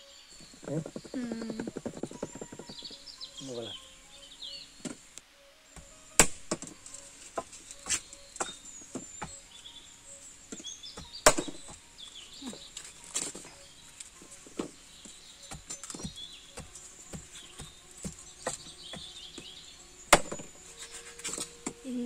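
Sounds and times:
faint bird chirps: 0:00.0 - 0:22.0
machete chopping a hard husk: 0:05.8 - 0:06.7, 0:11.0 - 0:11.8, 0:20.1 - 0:20.6
wooden pestle knocking in mortar: 0:10.5 - 0:11.8, 0:14.6 - 0:19.5, 0:20.1 - 0:20.6.

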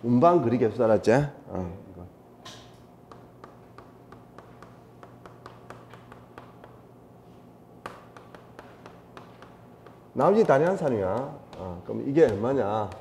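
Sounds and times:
chalk tapping on blackboard: 0:03.0 - 0:06.8, 0:07.8 - 0:13.0.

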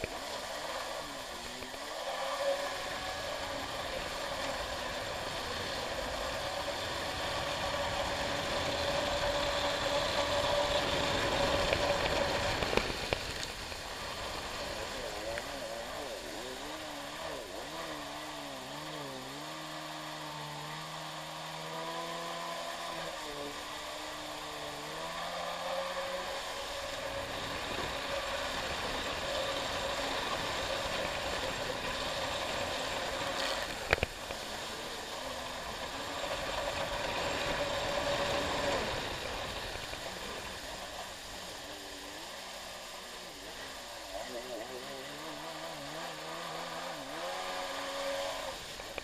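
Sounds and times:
water spray rushing: 0:00.0 - 0:19.4
jet ski engine running: 0:00.0 - 0:49.0.

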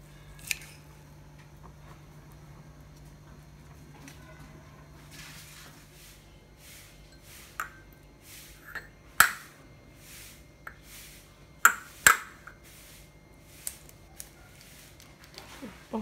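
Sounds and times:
egg tapping on ceramic bowl: 0:11.6 - 0:12.4.

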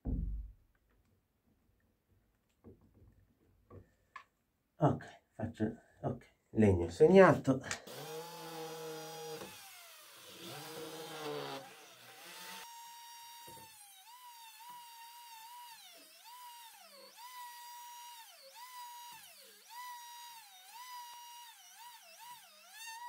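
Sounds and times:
corded drill running: 0:07.8 - 0:23.0
rotary tool whining on wood: 0:07.8 - 0:23.0.

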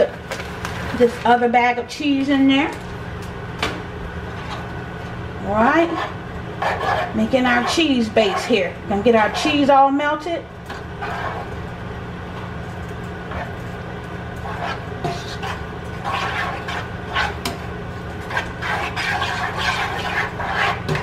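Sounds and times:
spatula scraping and stirring: 0:04.2 - 0:21.0.

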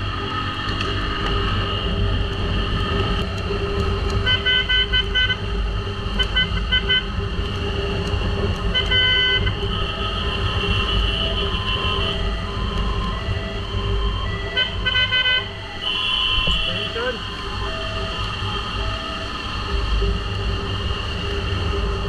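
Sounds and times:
vehicle horn beeping: 0:04.2 - 0:05.4, 0:06.2 - 0:07.1, 0:08.7 - 0:12.2, 0:14.6 - 0:17.2.

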